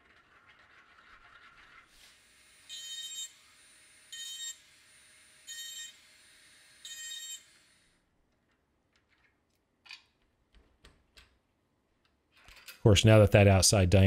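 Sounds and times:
high-pitched alarm beep: 0:02.7 - 0:03.4, 0:04.1 - 0:04.6, 0:05.5 - 0:06.0, 0:06.8 - 0:07.5.

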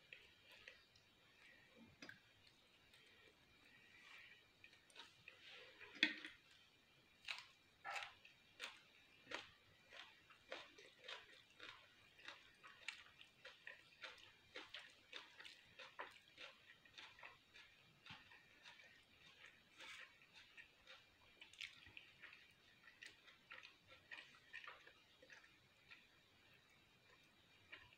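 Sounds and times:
wet squishy chewing: 0:07.2 - 0:27.9.

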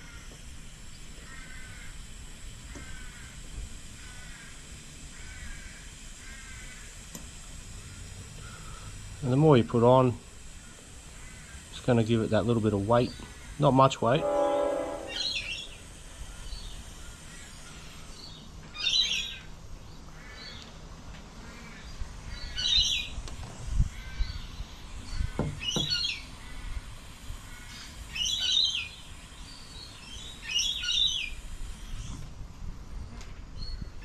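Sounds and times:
bird calling: 0:07.8 - 0:09.0, 0:12.9 - 0:20.8, 0:21.4 - 0:23.2, 0:23.9 - 0:26.9, 0:27.5 - 0:32.2.

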